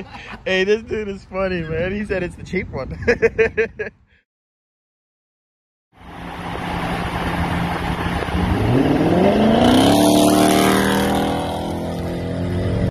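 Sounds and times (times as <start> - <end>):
road and wind noise: 0.0 - 4.2, 5.9 - 12.9
car engine accelerating: 6.0 - 12.9.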